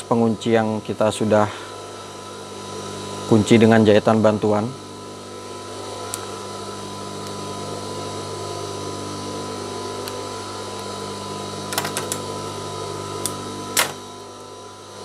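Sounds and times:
sharp clicks: 11.8 - 12.2, 13.8 - 14.0
sewing machine motor humming: 13.8 - 14.1.

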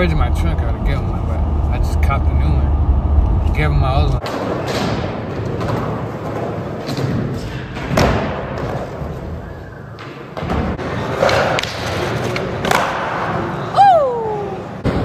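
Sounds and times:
skateboard wheels rolling on concrete: 4.2 - 13.9
skateboard thuds and slaps: 6.8 - 9.0.

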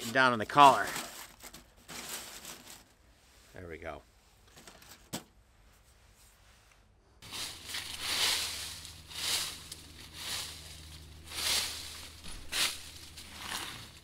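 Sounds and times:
footsteps through dry leaves: 7.2 - 14.0.

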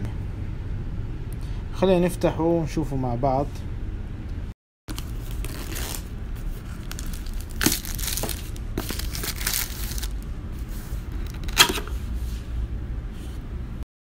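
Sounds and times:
plastic wrapping crinkling: 4.9 - 10.2.

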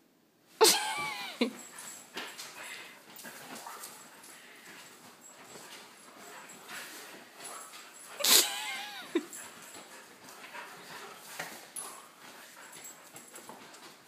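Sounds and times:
dog whining: 8.2 - 9.3.

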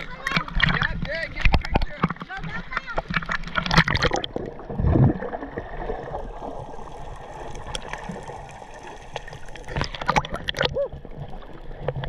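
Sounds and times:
underwater gurgling and rushing: 0.0 - 12.0
water splashing: 0.0 - 12.0.

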